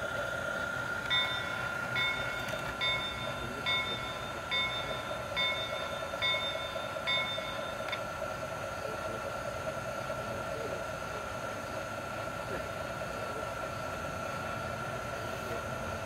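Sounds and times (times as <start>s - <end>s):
model train whine and hum: 0.0s - 16.0s
locomotive bell ringing: 1.0s - 8.4s.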